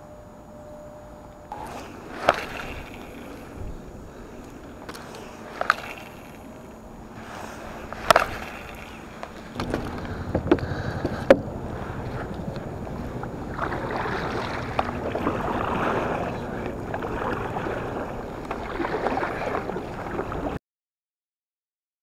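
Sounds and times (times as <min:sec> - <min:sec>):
water rushing against hull: 0:01.5 - 0:20.6
fishing gear knocking on kayak: 0:07.9 - 0:11.5.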